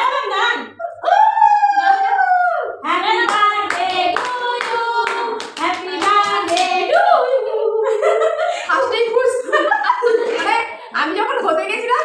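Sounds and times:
women and girl singing: 1.6 - 8.1
people clapping: 3.1 - 6.9.

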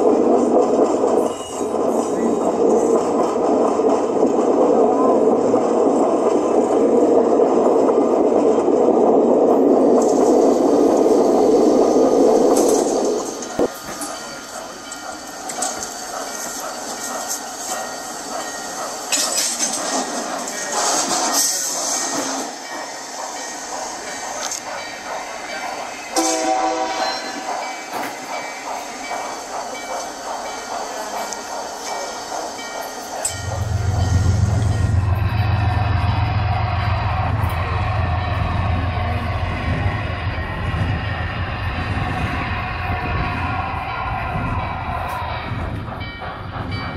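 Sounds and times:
model train wheels rumbling on rail: 0.0 - 46.9
train horn: 26.2 - 27.4
loud low hum: 33.4 - 39.9.

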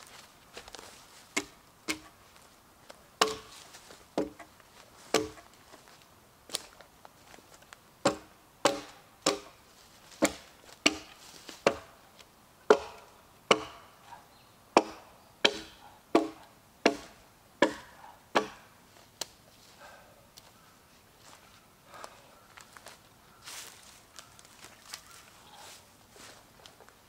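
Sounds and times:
axe chopping wood: 1.3 - 2.2, 3.2 - 3.6, 4.2 - 4.5, 5.1 - 5.5, 8.0 - 9.6, 10.2 - 11.9, 12.7 - 13.9, 14.8 - 18.7.

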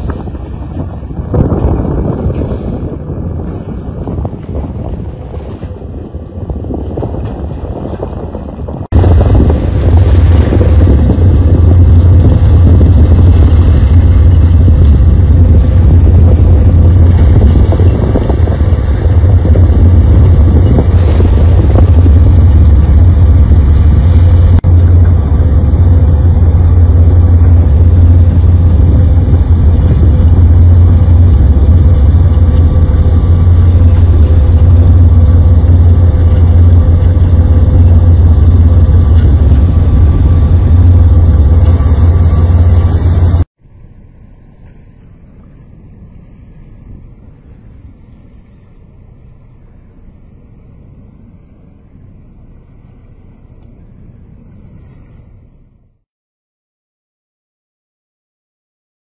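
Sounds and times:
wind buffeting microphone: 0.0 - 43.5
boat engine droning: 0.0 - 56.0.

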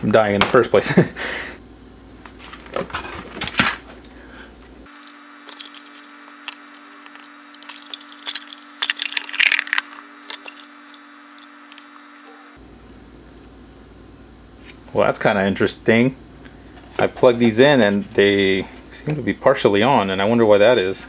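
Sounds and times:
faint steady hum: 0.0 - 21.0
small hard parts clicking: 4.8 - 11.9.

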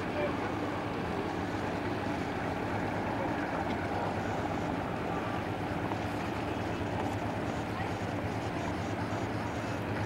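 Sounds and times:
boat engine drone: 0.0 - 10.0.

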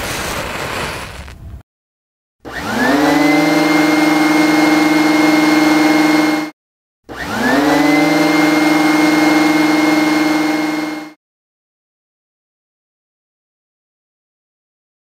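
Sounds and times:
vacuum cleaner motor whine: 2.5 - 11.2.

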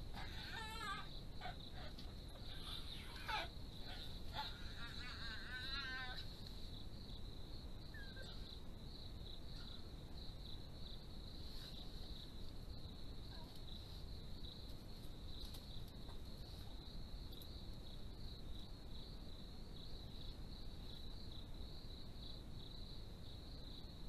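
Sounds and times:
crickets chirping: 0.0 - 24.0
low steady background hiss: 0.0 - 24.0.

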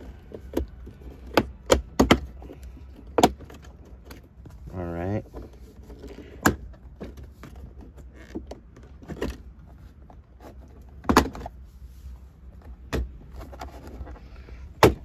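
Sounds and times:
plastic panel clicks and knocks: 0.3 - 4.2.

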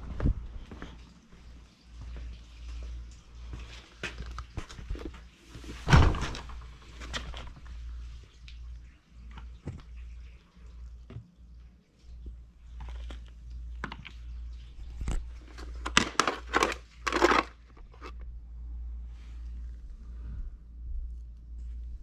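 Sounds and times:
plastic case scraping: 15.4 - 18.2.

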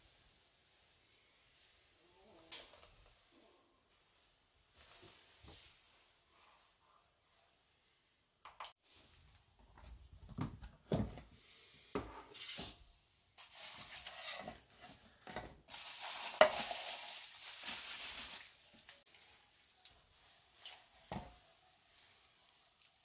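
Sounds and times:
plastic bag crinkling: 13.4 - 14.2, 15.7 - 19.9.

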